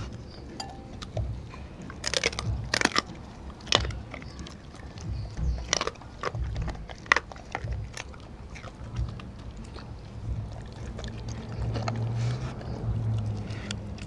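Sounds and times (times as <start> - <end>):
dog chewing with sharp cracks: 0.0 - 14.0
low hum: 0.2 - 7.0.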